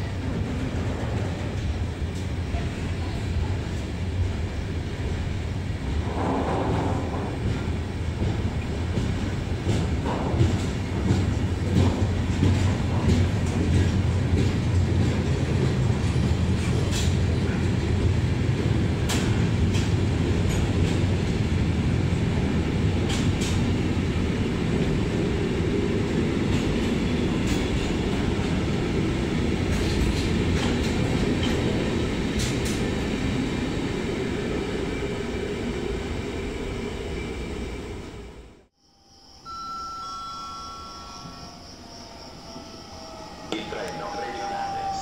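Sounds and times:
freight train wheels rumbling on rail: 0:00.0 - 0:38.7
sharp clicks of train wheels: 0:06.0 - 0:21.6, 0:22.4 - 0:24.0, 0:26.0 - 0:33.1.

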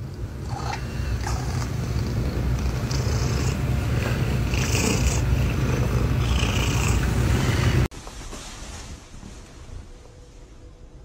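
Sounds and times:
cat purring: 0:00.0 - 0:07.9.

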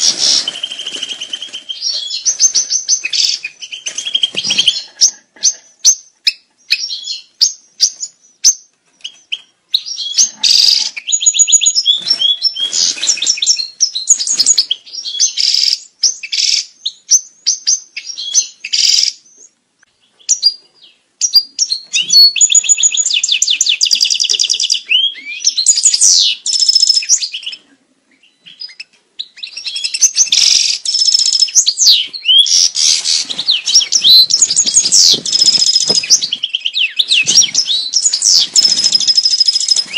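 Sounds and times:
goldfinch twittering song: 0:00.0 - 0:04.9, 0:28.2 - 0:39.9.

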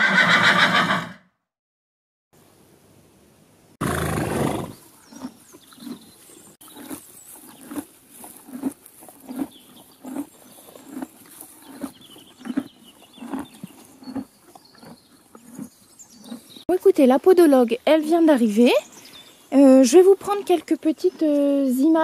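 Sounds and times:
horses chewing hay: 0:04.6 - 0:16.7.

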